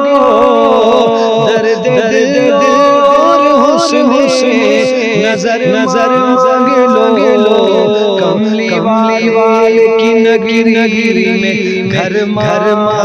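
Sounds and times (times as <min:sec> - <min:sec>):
solo voice singing: 0:00.0 - 0:13.0.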